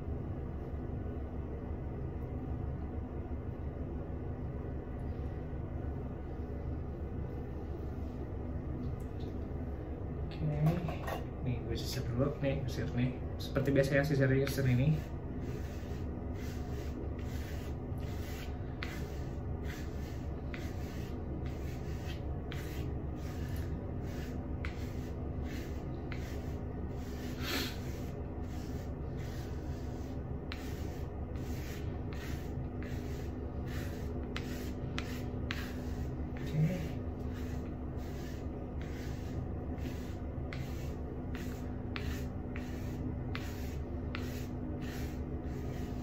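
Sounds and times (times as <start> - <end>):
brush scraping through hair: 14.4 - 46.0.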